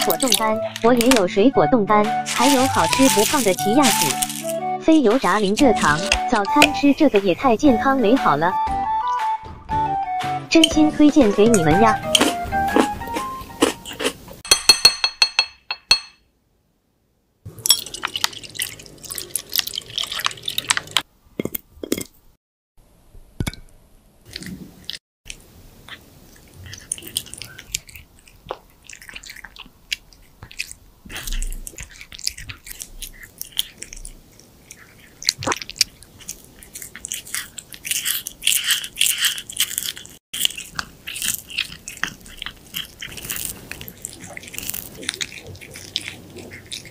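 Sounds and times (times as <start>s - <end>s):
cat crunching food: 2.3s - 4.6s, 24.3s - 46.9s
cat chewing wet treats: 26.2s - 46.9s
wet smacks and clicks: 26.7s - 34.0s, 34.8s - 46.9s.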